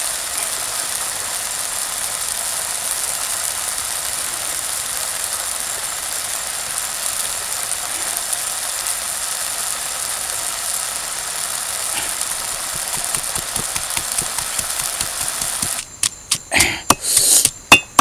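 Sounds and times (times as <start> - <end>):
insects chirring: 0.0 - 18.0
pestle pounding in stone mortar: 12.8 - 18.0.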